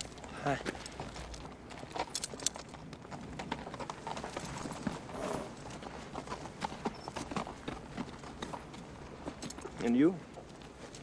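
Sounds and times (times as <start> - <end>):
horse hooves clopping: 0.0 - 11.0.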